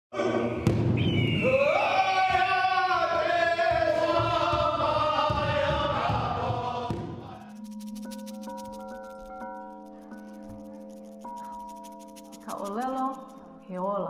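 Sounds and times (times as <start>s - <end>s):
chanting voices in sliding notes: 1.6s - 7.7s
low pulsing beat: 6.2s - 14.0s.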